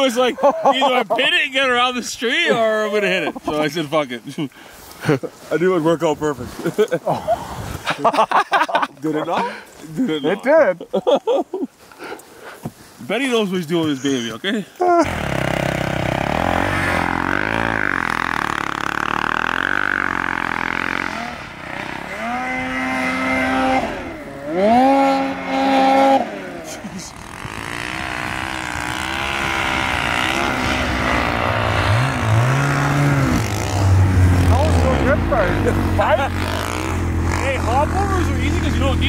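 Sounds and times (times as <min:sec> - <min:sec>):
snowmobile engines revving: 0:00.0 - 0:11.4, 0:13.1 - 0:39.0
snowmobile passing close: 0:15.0 - 0:39.0.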